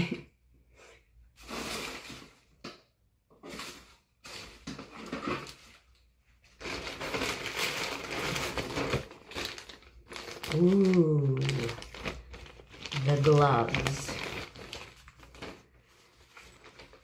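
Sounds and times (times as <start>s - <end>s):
plastic bag rustling: 3.4s - 17.0s.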